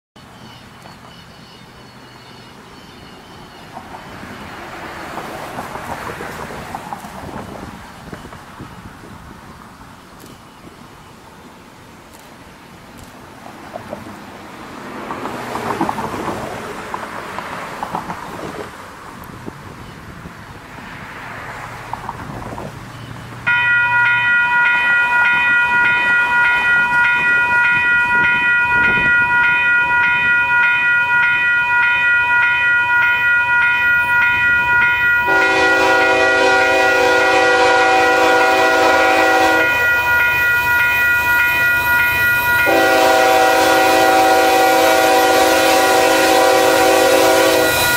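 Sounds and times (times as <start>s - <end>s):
grade crossing warning bell: 0.2s - 5.2s, 22.9s - 47.9s
wind gusts: 0.2s - 47.9s
locomotive air horn: 34.1s - 40.2s, 41.3s - 47.9s.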